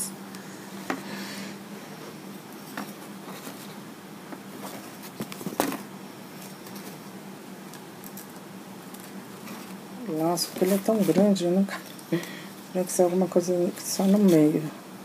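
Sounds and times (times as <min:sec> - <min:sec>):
faint steady hum: 0:00.0 - 0:15.0
ribbon rustling: 0:02.5 - 0:03.8, 0:07.7 - 0:14.6.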